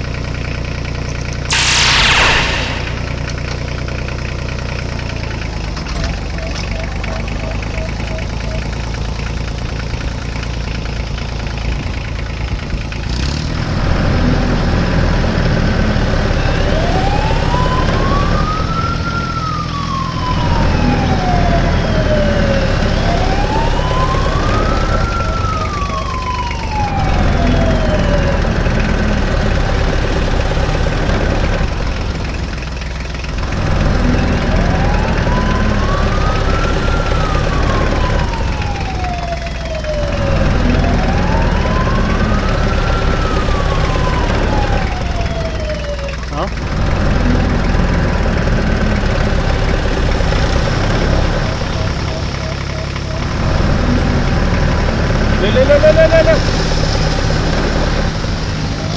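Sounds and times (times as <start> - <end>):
low engine rumble: 0.0 - 58.9
siren wailing: 1.5 - 3.5, 15.9 - 31.7, 33.6 - 46.5, 49.0 - 58.9.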